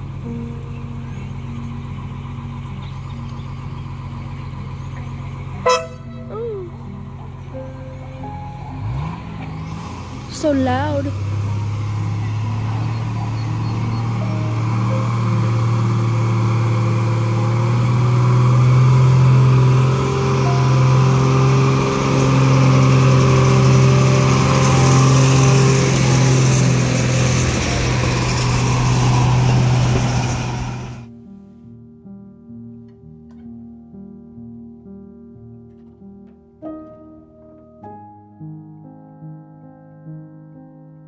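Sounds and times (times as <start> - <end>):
diesel locomotive engine running: 0.0 - 31.1.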